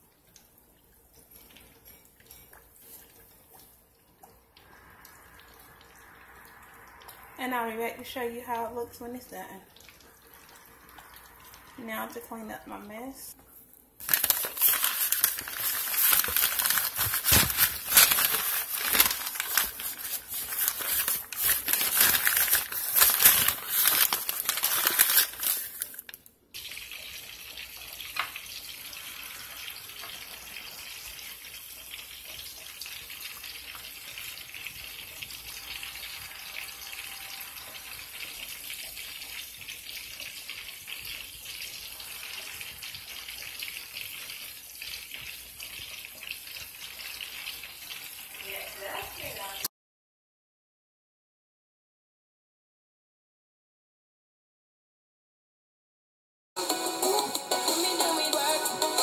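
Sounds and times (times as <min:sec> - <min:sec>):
fish frying in bubbling oil: 0:00.0 - 0:12.5, 0:14.0 - 0:49.7
wrapping crinkling and rustling: 0:13.5 - 0:26.3.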